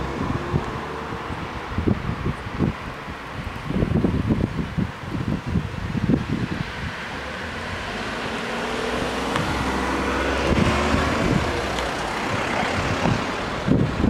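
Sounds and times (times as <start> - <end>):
vehicle passing: 6.2 - 14.0.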